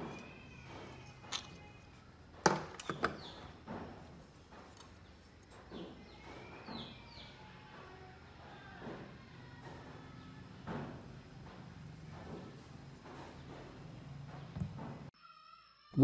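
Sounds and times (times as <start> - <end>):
handling knocks and clicks: 0.0 - 6.8.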